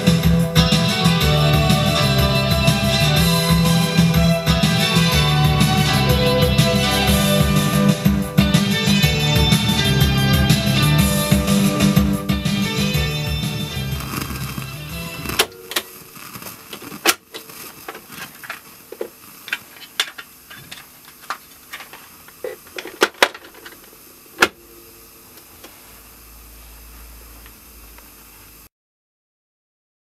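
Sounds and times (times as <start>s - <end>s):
music: 0.0s - 16.5s.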